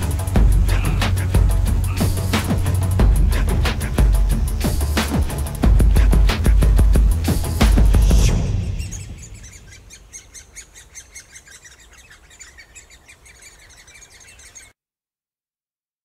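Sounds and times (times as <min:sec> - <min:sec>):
nestlings chirping rapidly: 0:00.0 - 0:14.8.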